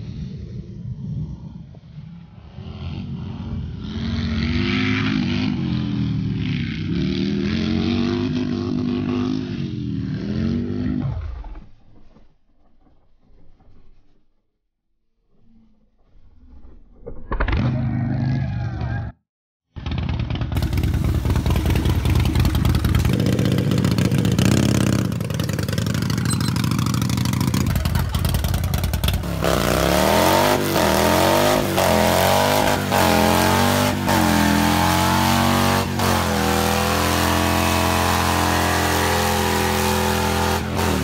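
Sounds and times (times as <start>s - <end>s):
motorcycle engine revving: 2.3s - 11.4s, 19.8s - 41.0s.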